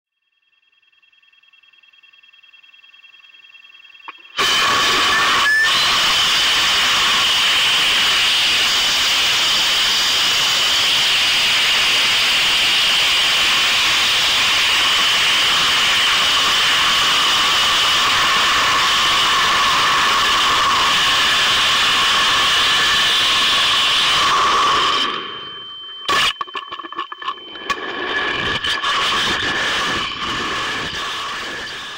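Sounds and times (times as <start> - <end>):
faint electronic whine: 0.1 - 31.9
rocket motor rushing hiss: 4.4 - 25.2.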